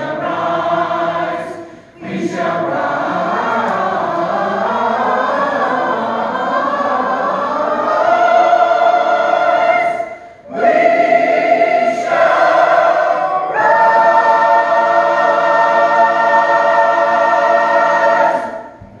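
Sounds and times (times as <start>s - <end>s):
church choir singing: 0.0s - 18.8s.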